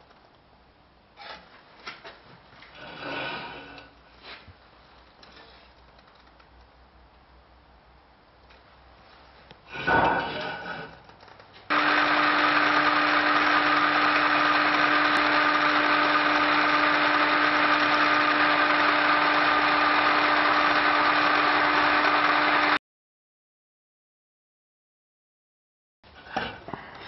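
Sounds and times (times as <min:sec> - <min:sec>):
drill bit cutting steel: 0:11.7 - 0:22.8
drill press motor hum: 0:11.7 - 0:22.8.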